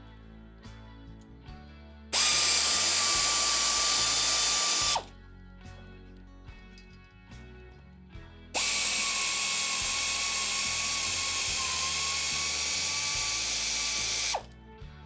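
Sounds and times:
pneumatic air ratchet running: 2.2 - 5.1, 8.6 - 14.5.

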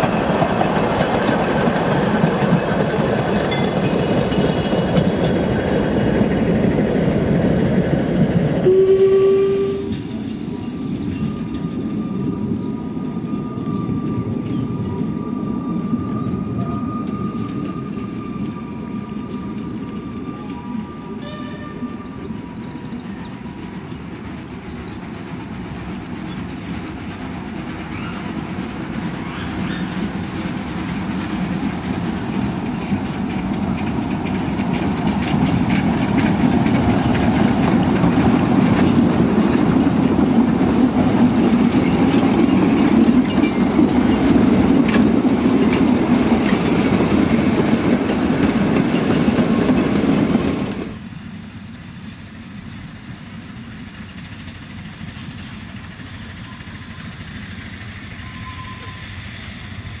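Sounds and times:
wheels clicking on track: 0.0 - 7.6, 22.2 - 60.0
distant train: 0.0 - 60.0
steam locomotive running past: 0.0 - 60.0.

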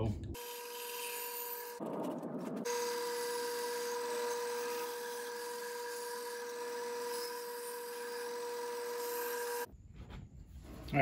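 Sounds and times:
bandsaw motor humming: 2.7 - 9.7.

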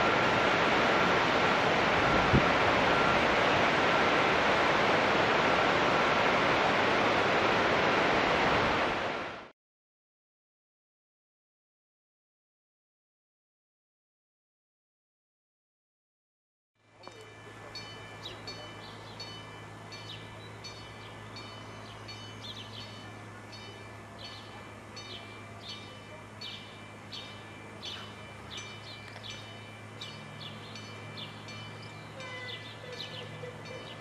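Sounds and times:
level crossing bell ringing: 17.1 - 34.0.

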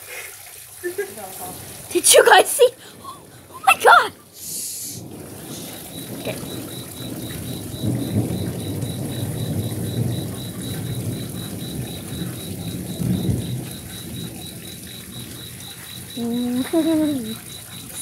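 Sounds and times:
steady rain: 0.0 - 18.0
low rolling thunder: 1.4 - 18.0
high insect chirp: 4.4 - 18.0.

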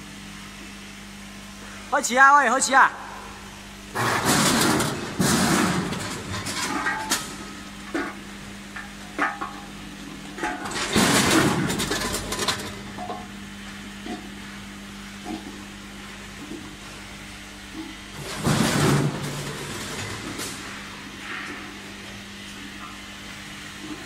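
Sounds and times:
low machine hum: 0.0 - 24.0
food clattering through metal hoppers: 4.0 - 8.2, 10.4 - 13.2.

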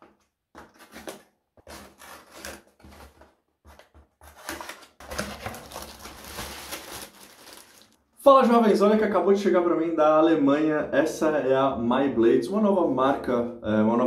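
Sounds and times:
cardboard box tearing: 0.6 - 7.9.

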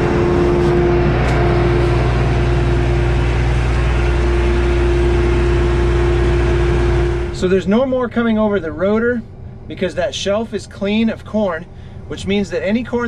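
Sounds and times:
steady tone: 0.0 - 10.2
combine harvester drone: 0.0 - 13.0.

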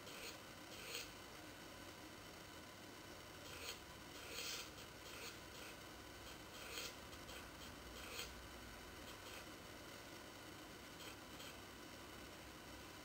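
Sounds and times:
fingertip rubbing on touchscreen: 3.5 - 8.3.

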